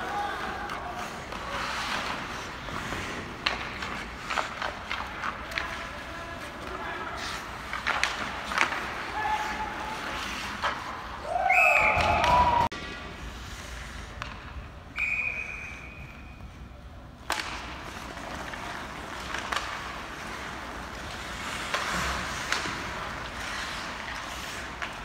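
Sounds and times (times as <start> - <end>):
skates scraping on ice: 0.0 - 14.9, 15.5 - 25.0
hockey sticks knocking: 0.4 - 11.0, 17.2 - 25.0
sharp crack of stick or puck: 6.7 - 10.9, 17.2 - 25.0
whistle blast: 11.5 - 12.2, 14.9 - 16.3.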